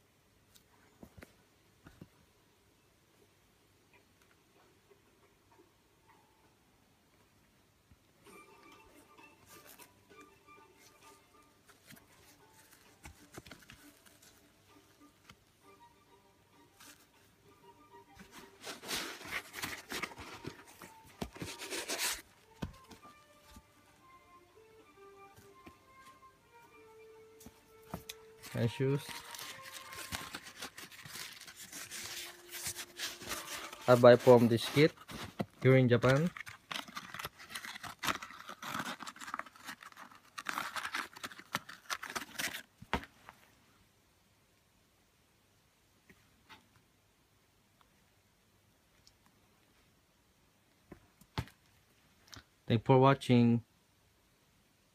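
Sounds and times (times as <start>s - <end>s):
paper and sneaker crinkling: 11.7s - 14.5s, 18.2s - 23.6s, 27.5s - 43.1s.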